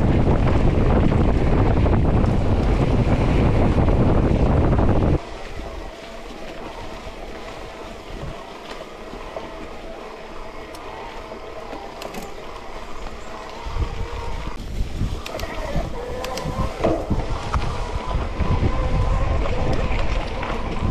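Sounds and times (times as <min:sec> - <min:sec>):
wind noise on microphone: 0:00.0 - 0:07.2, 0:13.3 - 0:20.9
bicycle rattling and humming: 0:00.0 - 0:20.9
sharp clicks: 0:15.2 - 0:15.6, 0:16.2 - 0:16.5.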